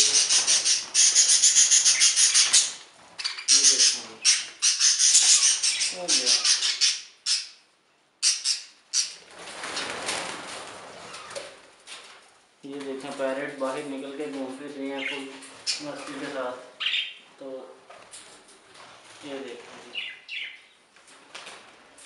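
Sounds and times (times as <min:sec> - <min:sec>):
wings fluttering: 0:00.0 - 0:05.6, 0:09.2 - 0:13.2
budgerigars chattering: 0:00.0 - 0:07.6, 0:08.2 - 0:09.2, 0:14.9 - 0:17.2.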